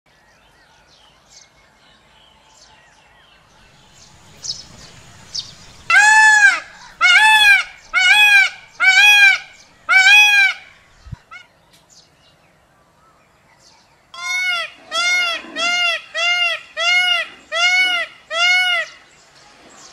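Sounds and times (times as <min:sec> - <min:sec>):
peacock calling: 0:03.5 - 0:11.6, 0:14.2 - 0:19.1.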